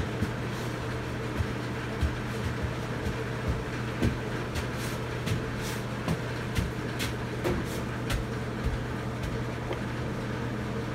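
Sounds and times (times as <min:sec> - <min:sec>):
constant low hum: 0:00.0 - 0:10.9.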